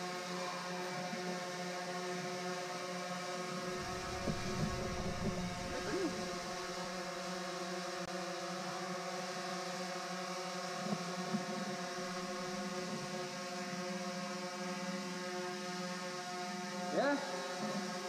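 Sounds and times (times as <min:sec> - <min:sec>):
drone propellers buzzing: 0:03.4 - 0:07.1.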